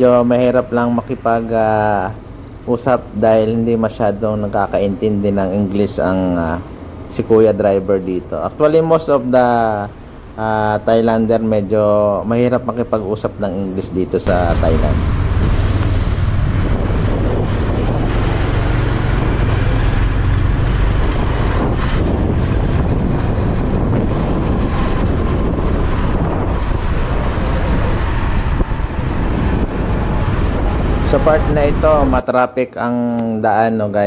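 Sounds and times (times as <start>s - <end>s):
road noise: 0.0s - 34.0s
motorbike engine: 0.2s - 4.5s, 14.2s - 32.1s
wind noise on microphone: 14.2s - 32.2s.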